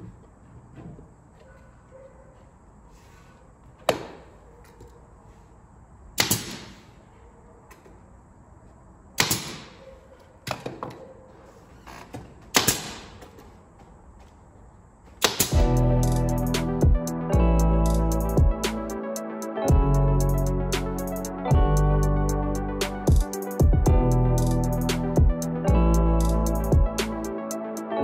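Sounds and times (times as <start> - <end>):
pneumatic nail gun firing: 6.2 - 6.9, 9.2 - 9.8, 12.5 - 13.4, 15.2 - 15.6.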